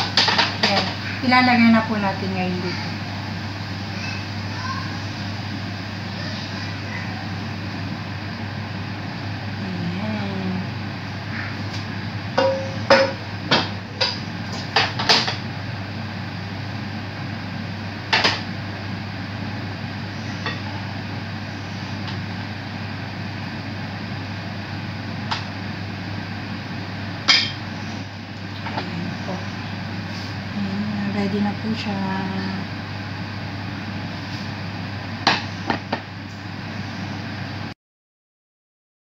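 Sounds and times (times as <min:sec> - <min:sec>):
steady low hum: 0:00.0 - 0:37.7
wooden spatula knocking on pan: 0:12.4 - 0:14.2.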